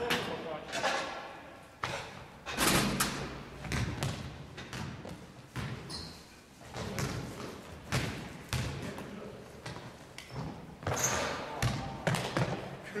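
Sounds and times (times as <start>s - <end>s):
basketball thudding on gym floor: 3.6s - 5.8s.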